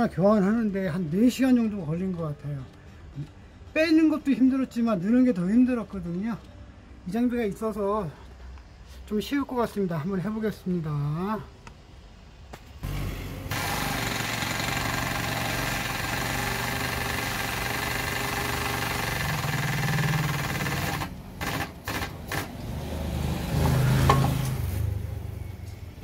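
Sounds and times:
hydraulic foot pump chattering: 0:12.8 - 0:22.6.

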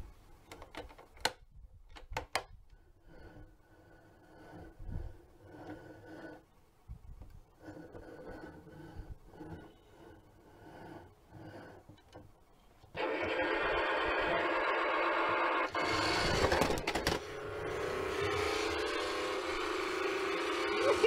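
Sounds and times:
faint rubbing of handled toy: 0:03.0 - 0:12.0
toy truck electronic sound effects: 0:13.0 - 0:19.8.

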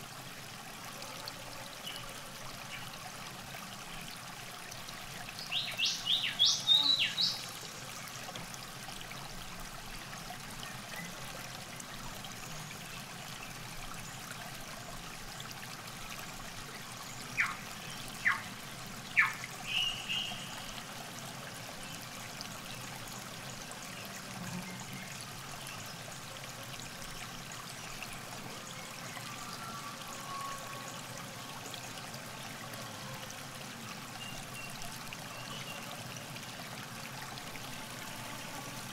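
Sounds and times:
river water trickling: 0:00.0 - 0:38.9
birds calling: 0:17.4 - 0:18.5, 0:19.2 - 0:20.5.

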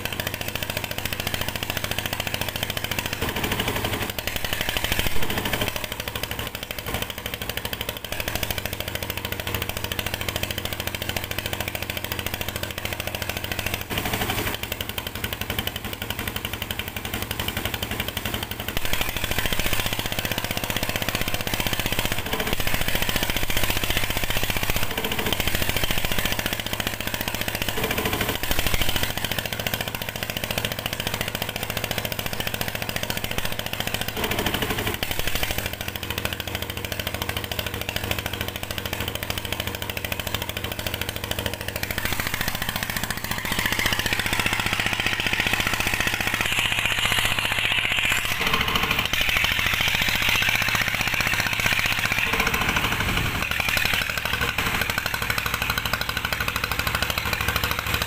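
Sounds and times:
water pump engine running: 0:00.0 - 0:58.0.

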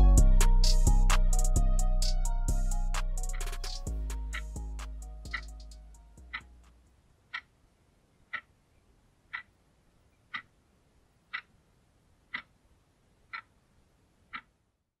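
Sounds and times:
alarm clock ticking: 0:02.9 - 0:06.7.

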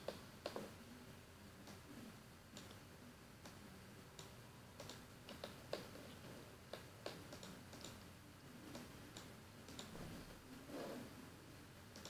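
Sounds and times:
faint computer mouse clicks: 0:04.2 - 0:05.9, 0:06.7 - 0:08.0, 0:08.7 - 0:09.9.

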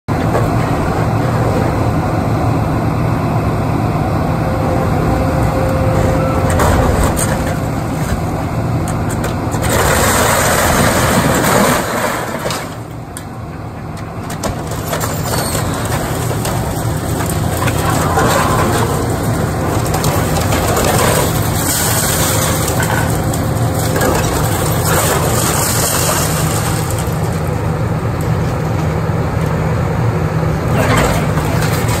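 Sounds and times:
excavator diesel engine running: 0:00.1 - 0:32.0
sheet metal and masonry crashing: 0:09.5 - 0:12.9, 0:14.3 - 0:27.6.

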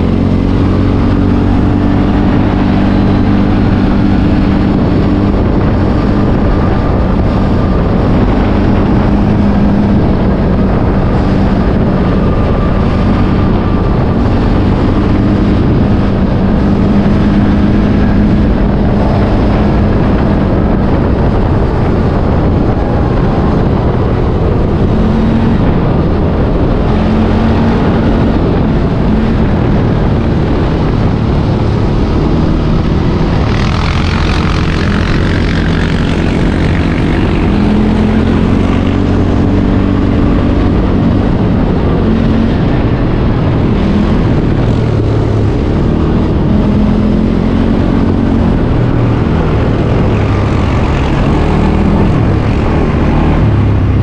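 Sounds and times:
quad bike engine running: 0:00.0 - 0:54.0
rush of noise: 0:00.0 - 0:54.0.

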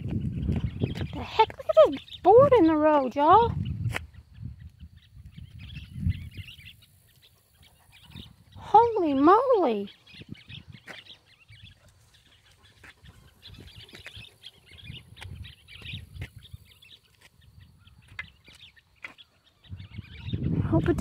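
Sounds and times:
footsteps on a road: 0:00.0 - 0:05.4, 0:10.7 - 0:19.6
birds chirping: 0:00.0 - 0:21.0.

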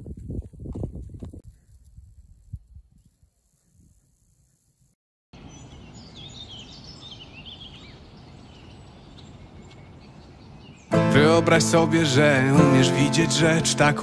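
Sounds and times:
small birds chirping: 0:05.4 - 0:11.0.

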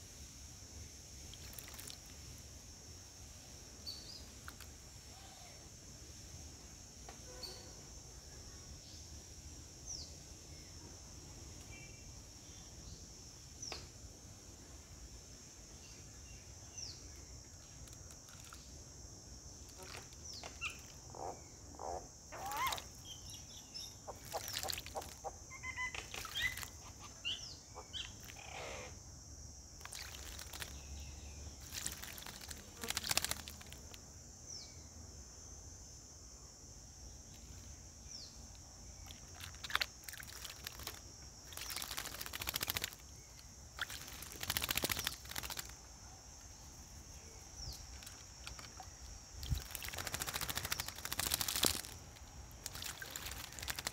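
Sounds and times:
bird splashing in water: 0:01.3 - 0:02.1, 0:19.7 - 0:20.9, 0:22.4 - 0:22.9, 0:24.1 - 0:25.4, 0:26.0 - 0:26.8, 0:29.8 - 0:30.8, 0:31.6 - 0:34.0, 0:39.0 - 0:45.8, 0:47.8 - 0:53.9
bird chirps: 0:20.3 - 0:28.9
wing flapping: 0:24.1 - 0:25.3, 0:26.0 - 0:26.8, 0:29.8 - 0:30.8, 0:31.6 - 0:34.0, 0:39.3 - 0:43.2, 0:43.8 - 0:45.8, 0:47.9 - 0:53.9.

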